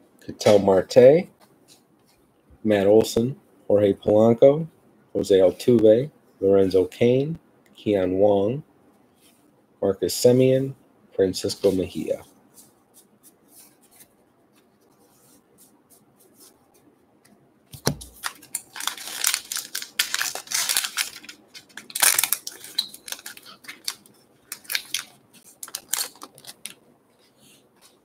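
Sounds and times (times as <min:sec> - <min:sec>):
foil wrapper tearing and crinkling: 0:18.1 - 0:26.8.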